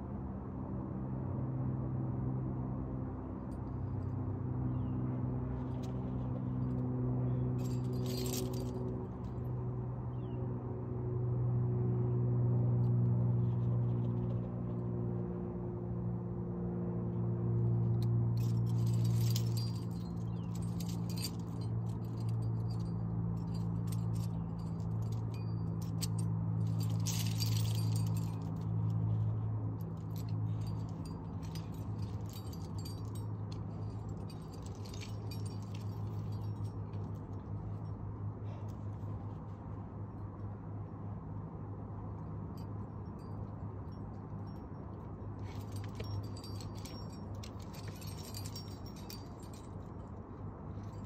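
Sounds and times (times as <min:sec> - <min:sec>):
metal climbing gear clinking: 0:05.6 - 0:09.6, 0:17.7 - 0:39.5, 0:42.4 - 0:51.0.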